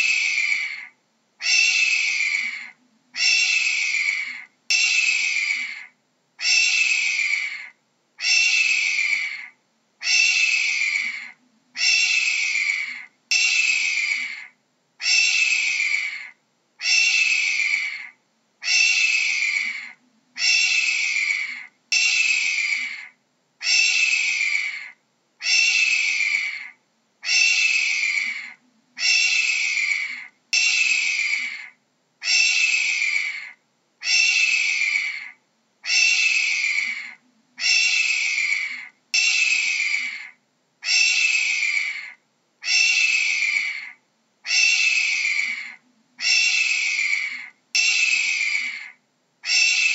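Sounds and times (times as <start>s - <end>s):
hawk screaming: 0.0s - 49.9s.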